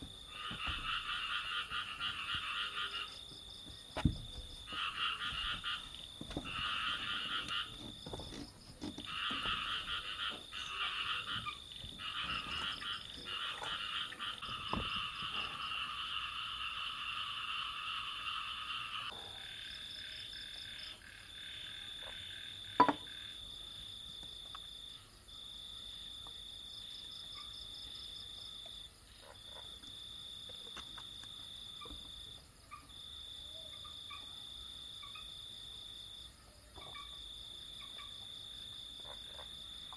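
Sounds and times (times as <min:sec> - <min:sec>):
frogs croaking: 0:00.0 - 0:39.9.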